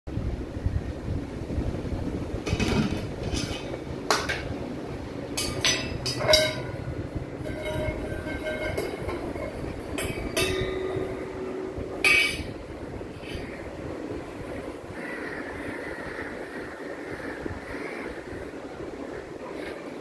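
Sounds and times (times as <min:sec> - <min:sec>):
steady low rumble: 0:00.1 - 0:20.0
metal pots and spoons clanging: 0:02.5 - 0:04.5, 0:05.4 - 0:12.6.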